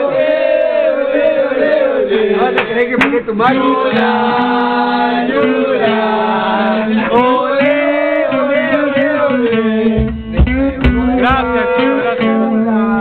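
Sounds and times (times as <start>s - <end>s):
men chanting and singing: 0.0s - 13.0s
low thud: 9.9s - 11.6s.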